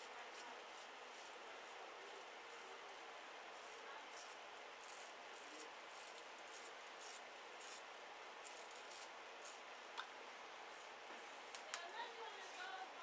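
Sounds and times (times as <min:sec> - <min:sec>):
razor scraping stubble: 0:00.3 - 0:01.8, 0:03.5 - 0:09.7.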